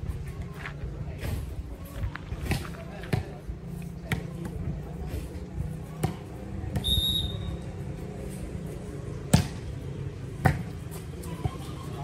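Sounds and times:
short high-pitched whistle: 6.8 - 7.6.

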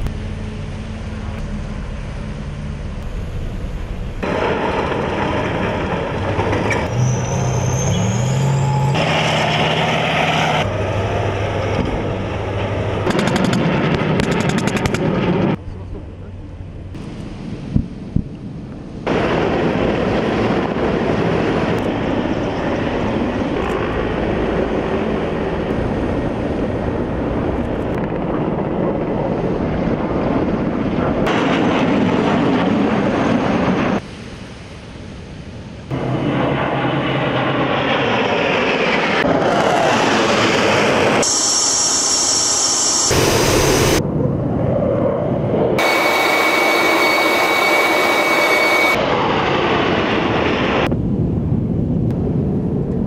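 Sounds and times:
jet cockpit high whine: 0.0 - 5.1, 6.6 - 17.6, 40.7 - 44.1, 45.8 - 49.8
helicopters flying over: 0.0 - 6.8, 8.7 - 34.0, 36.0 - 50.9
aircraft engines passing: 0.0 - 53.0.

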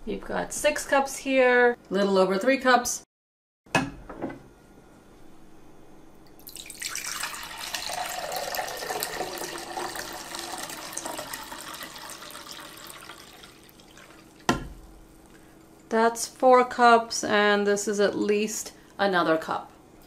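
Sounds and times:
juice pouring into glass cup: 6.4 - 14.5.

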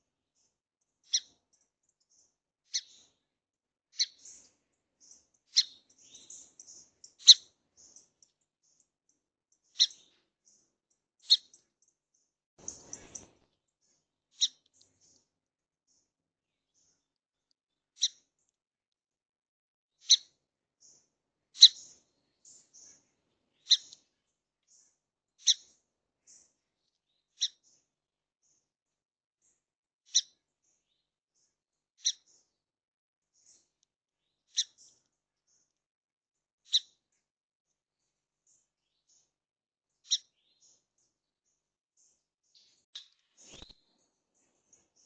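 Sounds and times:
songbird chip calls: 1.0 - 1.3, 2.7 - 3.1, 4.0 - 4.4, 5.0 - 8.0, 9.6 - 10.2, 11.2 - 11.6, 21.6 - 21.9, 23.6 - 24.0, 27.4 - 27.7, 32.0 - 32.3, 34.5 - 34.9, 40.0 - 40.8.

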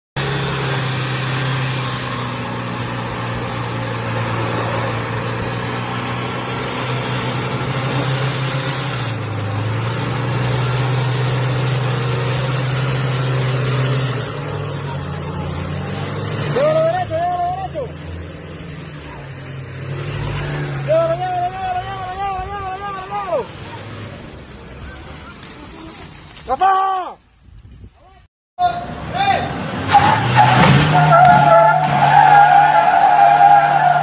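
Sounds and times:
pickup engine under heavy load: 0.2 - 26.4.

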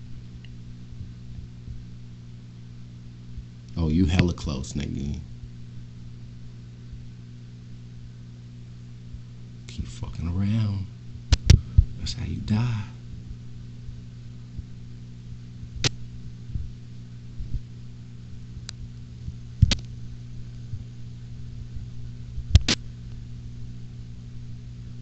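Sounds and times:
low electrical hum: 0.0 - 25.0
sharp clicks: 19.6 - 19.9, 22.5 - 22.8.

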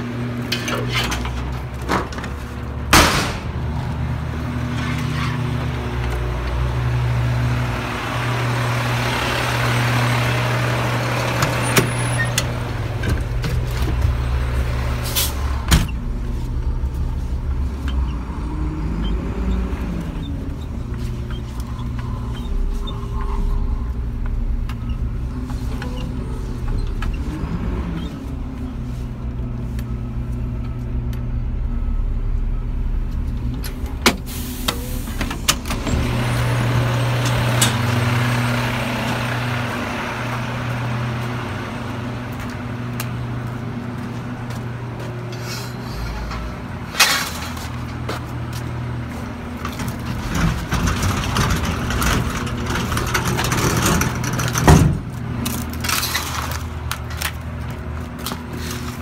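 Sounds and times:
diesel truck engine running: 0.0 - 59.0.

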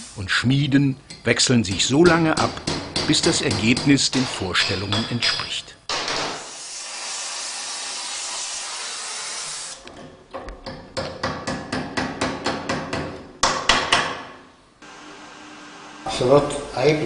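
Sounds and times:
steady hiss: 0.0 - 1.0, 6.3 - 9.8
hammer striking metal on anvil: 1.7 - 6.4.

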